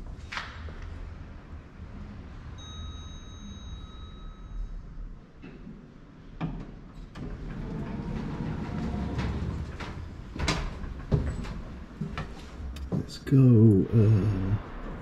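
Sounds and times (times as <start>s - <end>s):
lift doors sliding: 6.2s - 13.7s
low mechanical rumble: 7.1s - 15.0s.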